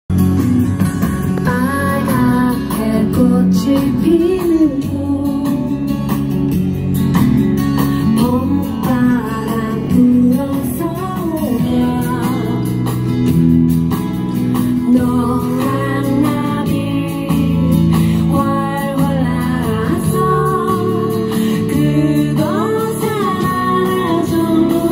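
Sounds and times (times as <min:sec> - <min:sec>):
backing music over speakers: 0:00.1 - 0:24.9
woman singing into microphone: 0:01.4 - 0:06.3, 0:08.0 - 0:13.0, 0:14.7 - 0:24.9.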